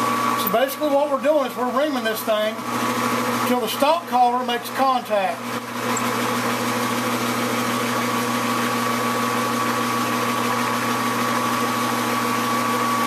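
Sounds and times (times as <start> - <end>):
metal lathe running: 0.2 - 13.0
reamer cutting metal: 1.9 - 8.8.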